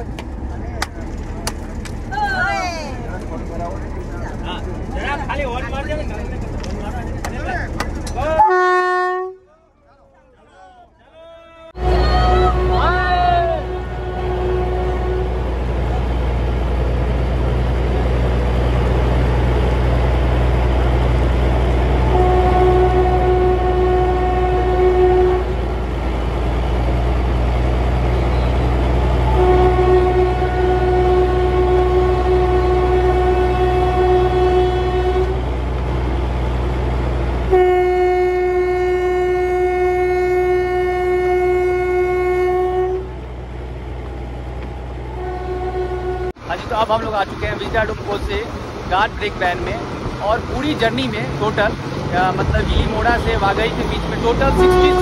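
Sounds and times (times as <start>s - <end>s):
rumble of moving train: 0.0s - 55.0s
train horn blasts: 8.3s - 9.5s, 11.8s - 15.8s, 21.8s - 25.7s, 28.2s - 35.5s, 37.5s - 43.2s, 45.1s - 46.4s, 54.3s - 55.0s.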